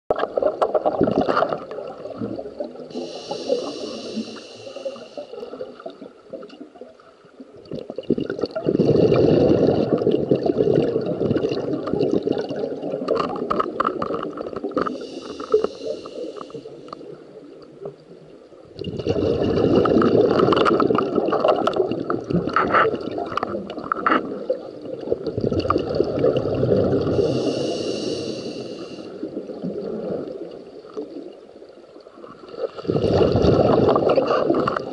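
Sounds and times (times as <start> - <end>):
gurgling exhaled bubbles: 0.1 - 18.0, 18.6 - 34.9
regulator hissing inhale: 2.9 - 5.5, 14.8 - 17.1, 27.0 - 29.3.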